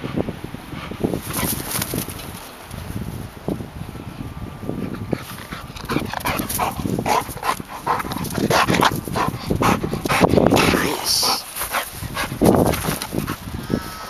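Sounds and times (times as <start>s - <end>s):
dog panting: 0.7s - 2.2s, 4.8s - 13.6s.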